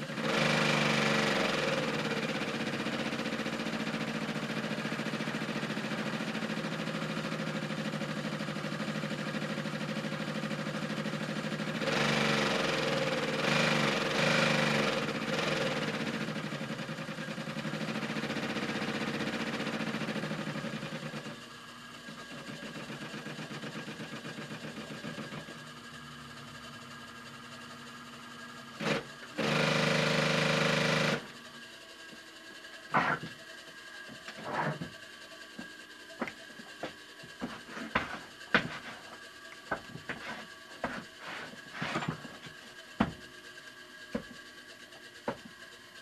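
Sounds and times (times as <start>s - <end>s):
sewing machine chattering: 0.1s - 21.4s, 28.8s - 31.3s.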